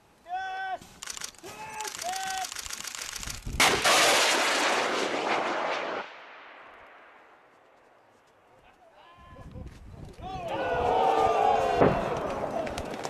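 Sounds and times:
missile rushing noise: 0:03.4 - 0:07.2
missile launch bang: 0:03.6 - 0:06.8.

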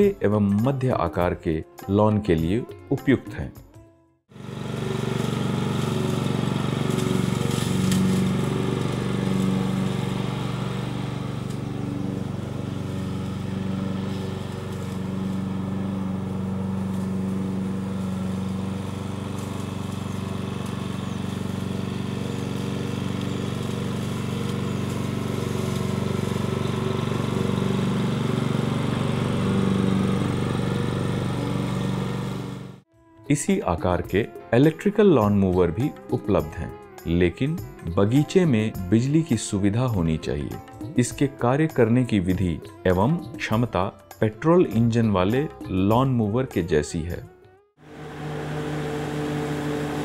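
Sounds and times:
lawn mower running: 0:04.3 - 0:32.9, 0:47.8 - 0:50.0.

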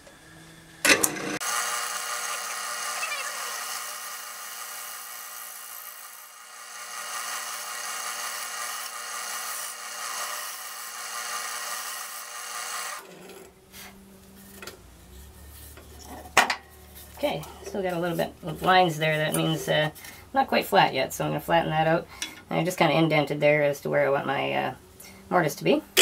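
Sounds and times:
wood lathe motor hum: 0:00.0 - 0:13.6.

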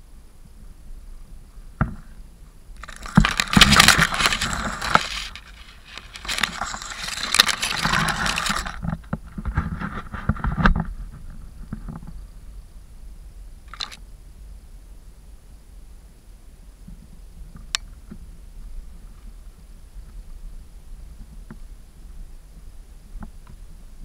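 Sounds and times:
grass brushing against microphone: 0:02.8 - 0:12.3.

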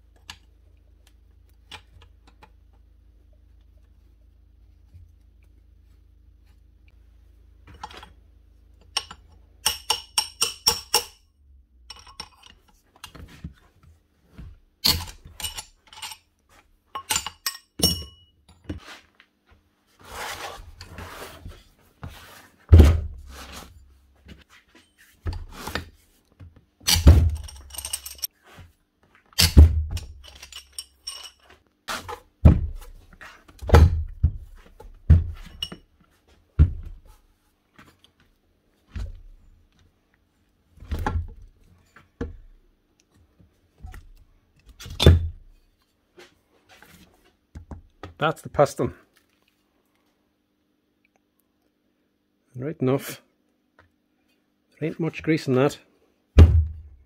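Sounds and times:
heavy metal thunks: 0:56.4 - 0:56.9.

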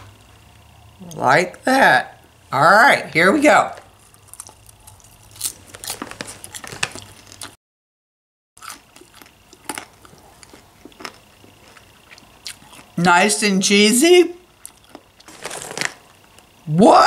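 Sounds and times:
person crunching popcorn: 0:03.9 - 0:07.6, 0:08.6 - 0:13.0, 0:14.5 - 0:16.6.

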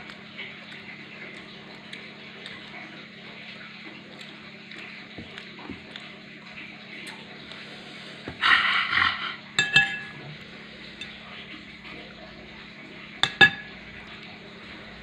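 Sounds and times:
spoon scraping plate: 0:08.4 - 0:10.2
spoon clinking on china plate: 0:09.6 - 0:10.2.

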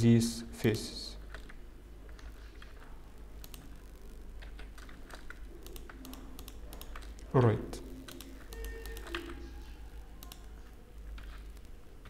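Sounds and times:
keyboard keys clicking: 0:04.4 - 0:12.0.

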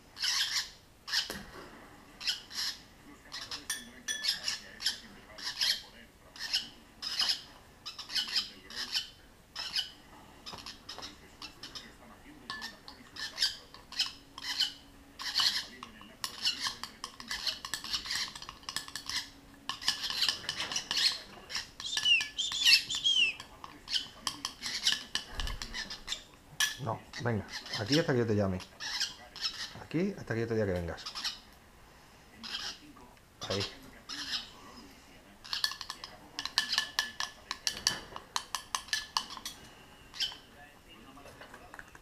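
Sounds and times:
young birds squawking and chirping: 0:00.0 - 0:01.4, 0:02.2 - 0:26.3, 0:27.1 - 0:30.0, 0:30.8 - 0:31.5, 0:32.4 - 0:34.5, 0:35.4 - 0:40.5
spoon clinking in glass cup: 0:03.7 - 0:04.4.

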